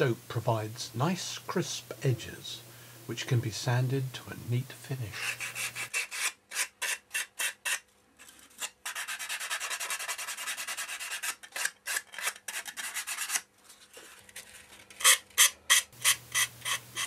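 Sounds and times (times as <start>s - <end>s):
sandpaper scraping: 5.0s - 17.0s.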